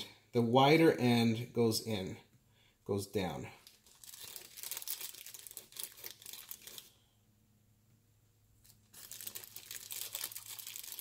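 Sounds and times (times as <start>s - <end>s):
plastic bag crinkling: 3.6s - 7.0s, 8.6s - 11.0s.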